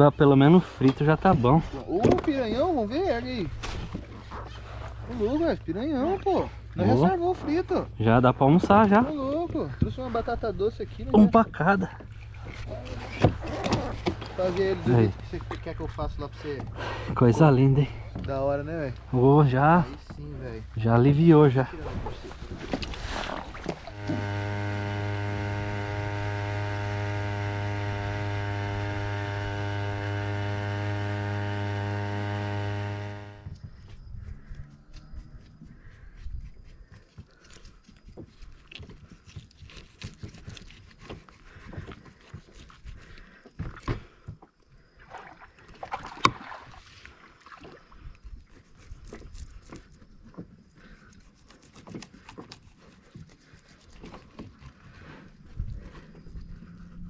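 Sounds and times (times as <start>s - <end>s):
electric motor hum: 23.9s - 33.5s
knife scraping fish scales: 39.3s - 42.9s, 51.0s - 54.8s.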